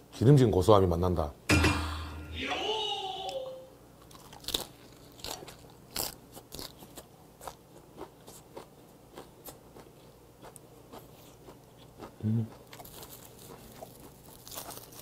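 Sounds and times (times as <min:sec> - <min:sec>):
crunchy chewing of cabbage leaf: 0:04.0 - 0:15.0.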